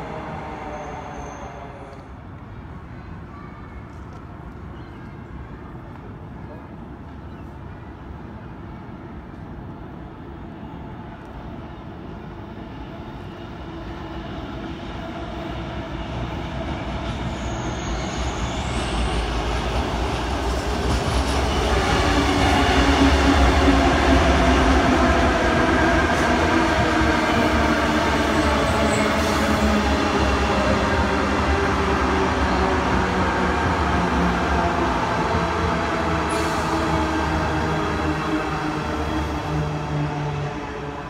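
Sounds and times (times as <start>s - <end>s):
electric train passing: 0.0s - 2.4s, 11.0s - 41.0s.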